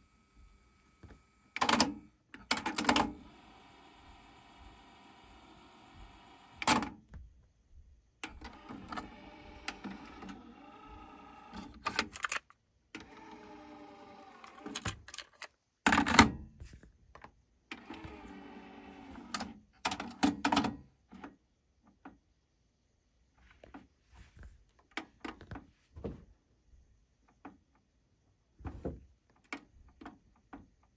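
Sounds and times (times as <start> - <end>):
clicks and clunks: 14.6 - 17.4, 28.6 - 30.9.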